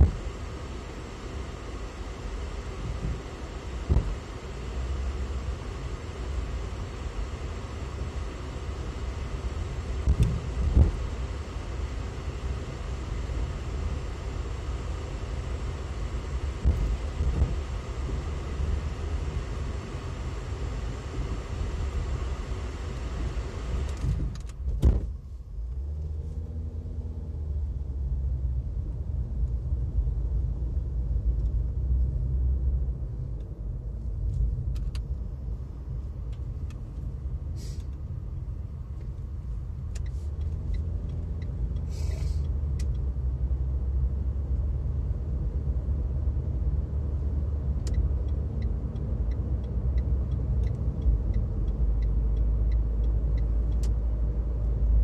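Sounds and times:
car engine and road rumble: 0.0s - 55.0s
faint regular ticking: 47.6s - 55.0s.

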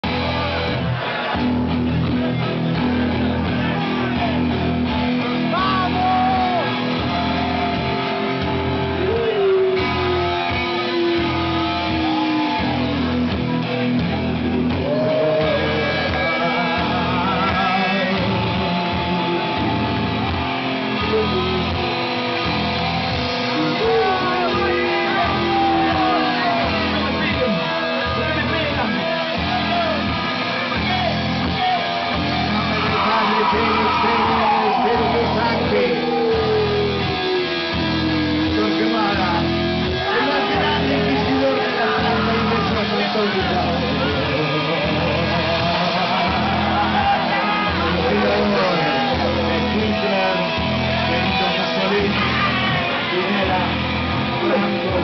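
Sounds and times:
drums: 0.0s - 55.0s
electric guitars: 0.0s - 55.0s
person singing: 14.7s - 20.0s, 31.5s - 55.0s.

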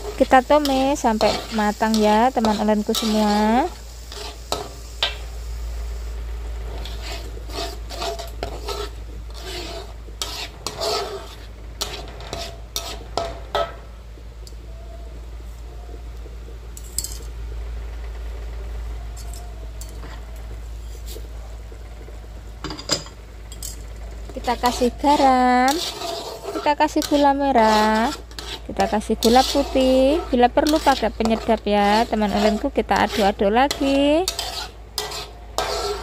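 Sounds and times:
metal spatula scraping a wok: 0.0s - 5.4s, 6.5s - 13.8s, 19.2s - 21.3s, 23.6s - 36.0s
spice paste sizzling: 0.0s - 14.6s, 23.5s - 36.0s.

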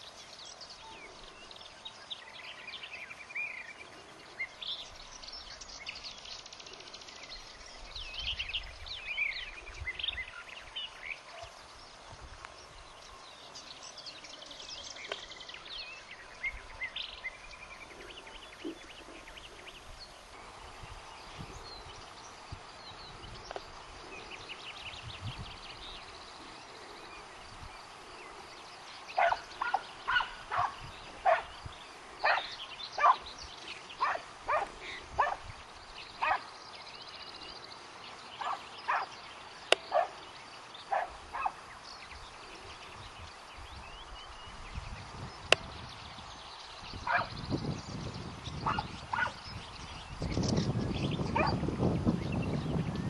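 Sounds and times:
hounds barking: 29.1s - 31.6s, 32.2s - 33.3s, 34.0s - 35.4s, 36.2s - 36.5s, 38.4s - 39.2s, 39.9s - 40.2s, 40.9s - 41.6s, 47.0s - 47.3s, 48.6s - 49.4s, 51.3s - 51.6s.

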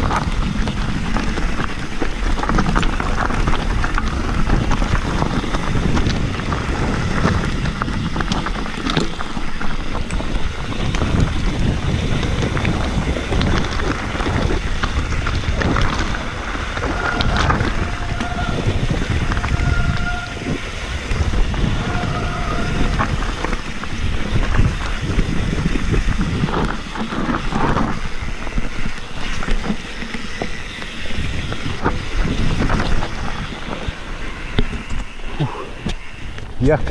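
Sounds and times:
bike rattling over rough ground: 0.0s - 36.9s
wind buffeting microphone: 0.0s - 36.9s
short squeals: 16.8s - 21.2s, 21.8s - 23.0s.

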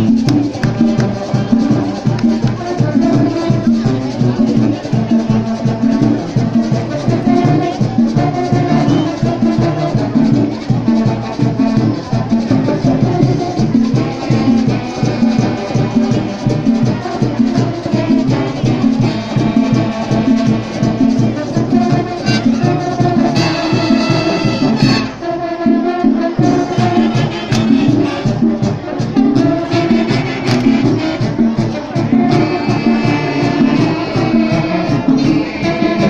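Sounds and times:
marching band brass over drums: 0.0s - 36.0s
held brass chord: 17.9s - 28.8s.

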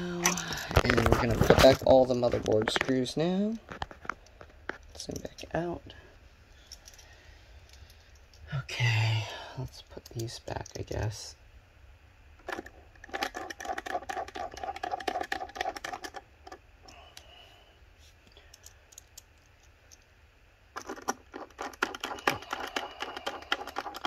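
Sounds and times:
screwdriver clicking and scraping on metal: 12.4s - 17.0s, 20.8s - 24.0s.

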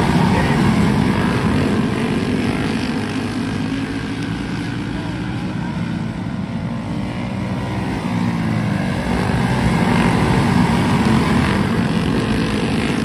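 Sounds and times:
go-kart engines droning: 0.0s - 13.0s.

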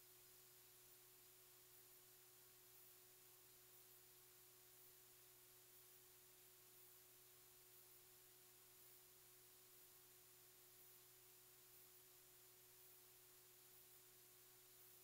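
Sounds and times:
faint hum and hiss: 0.0s - 15.0s.

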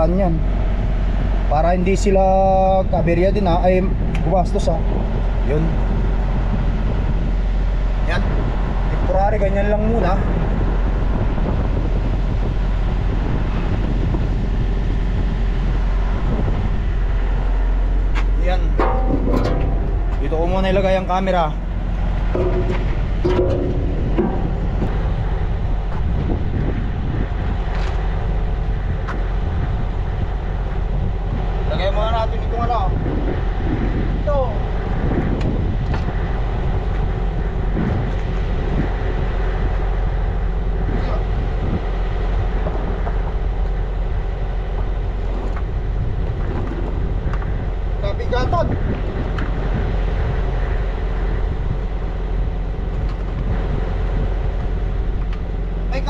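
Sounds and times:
diesel engine idling: 15.7s - 27.1s
faint knocks: 22.2s - 25.2s.

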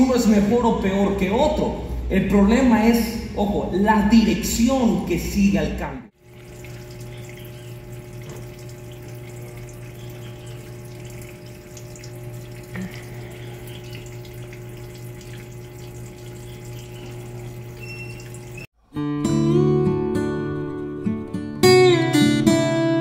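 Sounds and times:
water pouring into washing machine: 6.1s - 18.7s.

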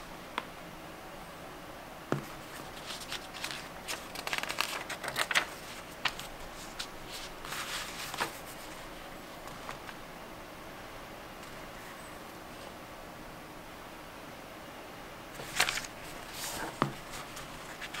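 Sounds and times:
paper pages turning: 2.2s - 10.0s, 15.4s - 18.0s.

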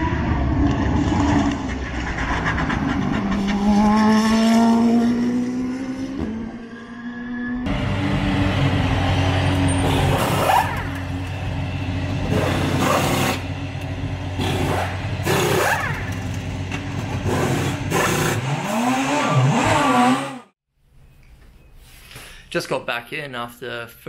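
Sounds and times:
race car engine running: 7.7s - 20.4s.

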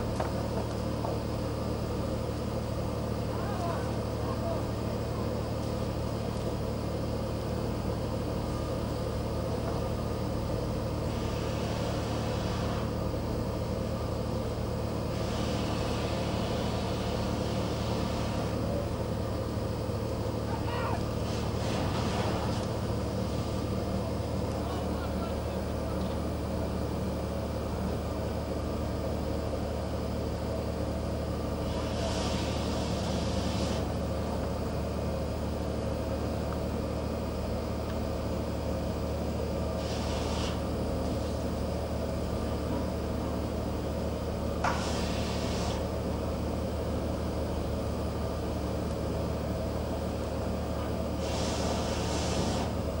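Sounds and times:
ship engine drone: 0.0s - 53.0s
short hissing rushes: 11.0s - 13.0s, 15.1s - 18.6s, 21.1s - 23.5s, 31.6s - 34.0s, 39.7s - 41.4s, 44.6s - 46.0s, 51.1s - 52.8s.

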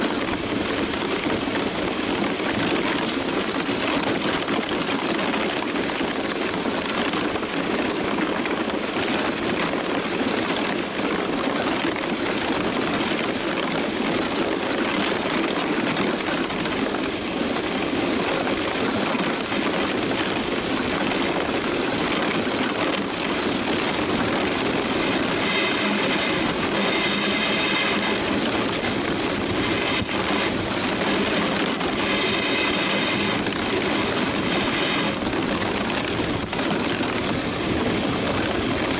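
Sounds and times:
runners rushing over ice: 0.0s - 38.9s
wind: 0.0s - 38.9s
high ringing whine: 25.1s - 35.9s.

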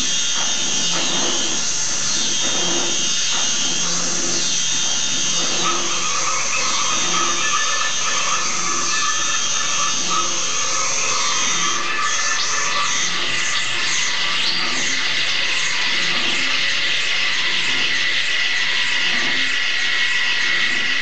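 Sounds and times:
drill-like grinding noise: 0.0s - 21.0s
high steady tone: 5.3s - 14.6s.

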